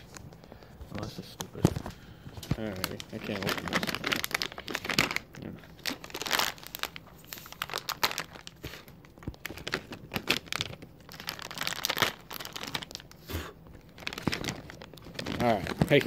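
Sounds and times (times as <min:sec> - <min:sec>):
cardboard crinkling and tearing: 0:00.9 - 0:13.2, 0:13.8 - 0:16.0.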